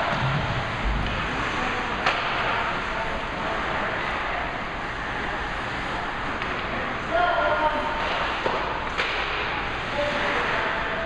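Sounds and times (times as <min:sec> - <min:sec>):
hockey sticks on puck: 0:08.0 - 0:09.5.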